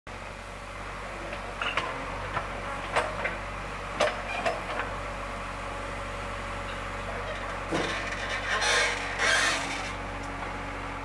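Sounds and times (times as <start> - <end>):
diesel engine running: 0.1 - 11.0
metallic clanks of digger bucket: 1.6 - 3.4, 6.6 - 10.0.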